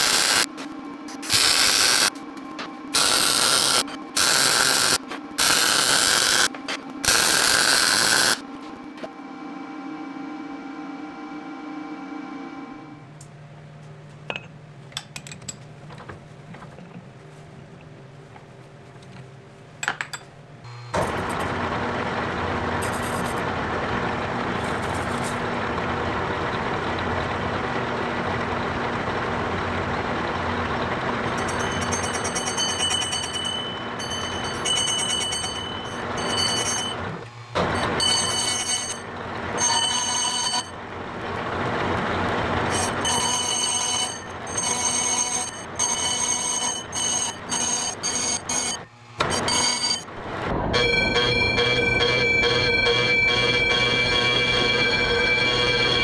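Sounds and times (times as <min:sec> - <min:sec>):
high ringing tone of cutting metal: 0:00.0 - 0:00.5, 0:01.1 - 0:02.2, 0:02.9 - 0:08.5, 0:31.3 - 0:41.0, 0:42.7 - 0:56.0
metal lathe motor hum: 0:00.0 - 0:13.0, 0:20.7 - 0:50.5.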